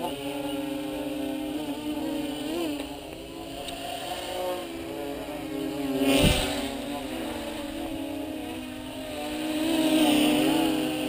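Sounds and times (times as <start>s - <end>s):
drone motors whining: 0.0s - 11.0s
short thump: 6.2s - 6.8s.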